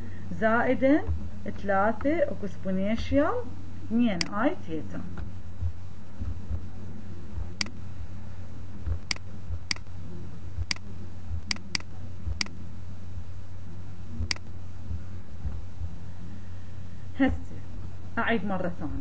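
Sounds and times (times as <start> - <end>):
steady low hum: 0.0 - 19.0
mouse and keyboard clicks: 11.5 - 12.5.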